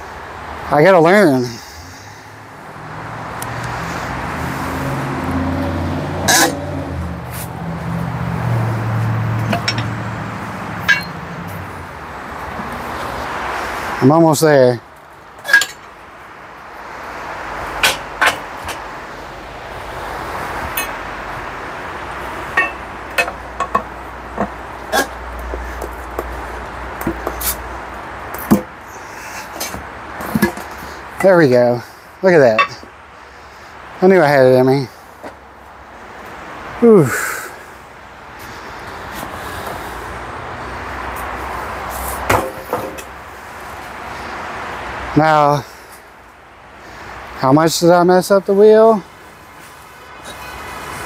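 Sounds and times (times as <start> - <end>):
tire being handled: 3.2 - 33.1, 38.3 - 45.0, 48.5 - 51.0
sharp metal clanks: 9.4 - 10.0, 10.8 - 11.3, 15.4 - 16.0, 17.8 - 18.8, 22.5 - 25.2, 32.5 - 32.9
sharp knocks: 28.4 - 28.7.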